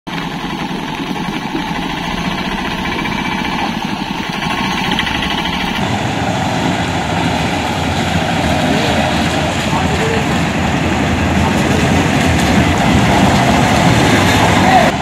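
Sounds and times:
rattly engine chugging: 0.1 - 5.9.

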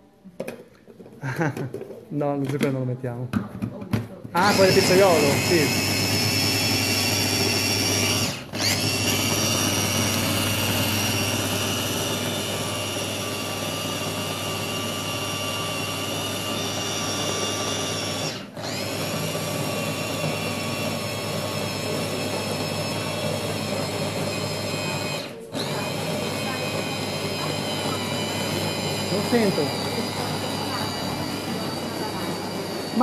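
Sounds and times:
food chopper motor whining: 4.4 - 33.0.

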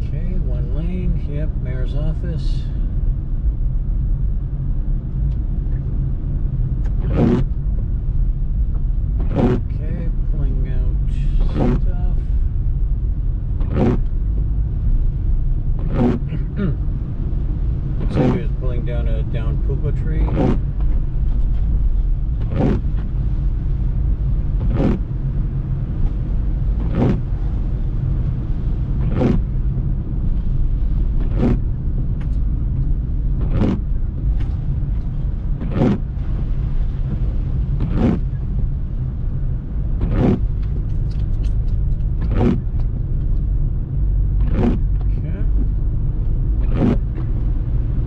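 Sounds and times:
car engine rumble: 0.0 - 48.0
tyres on wet road: 0.0 - 48.0
windshield wipers swishing: 6.8 - 7.8, 8.7 - 9.8, 11.0 - 12.2, 13.4 - 48.0.

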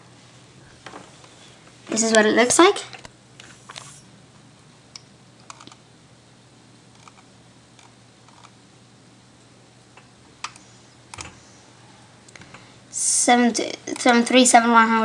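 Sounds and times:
low steady hum: 0.0 - 15.0.

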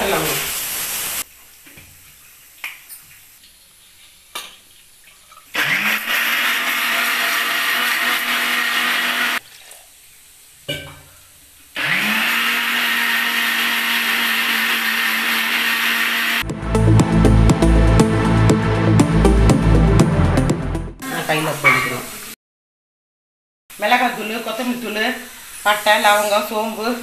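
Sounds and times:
mixer grinder whirring: 5.6 - 9.4, 11.8 - 16.5.

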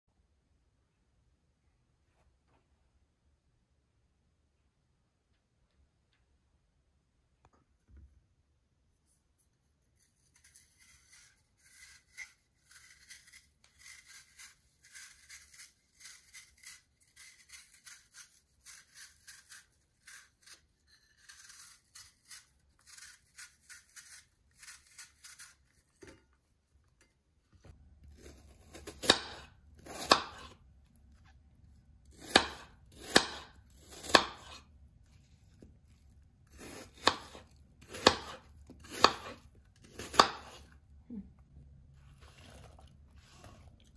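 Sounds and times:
knife scraping apple skin: 9.8 - 26.2, 28.0 - 30.6, 32.0 - 40.8
knife chopping on wooden board: 28.7 - 30.6, 32.2 - 34.6, 36.6 - 40.6.

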